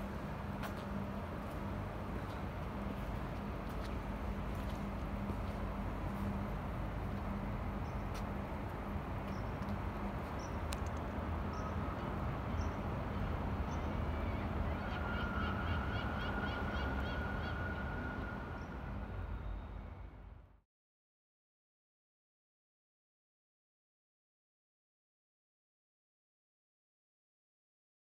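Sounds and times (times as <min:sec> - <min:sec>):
outdoor city hum: 0:00.0 - 0:20.6.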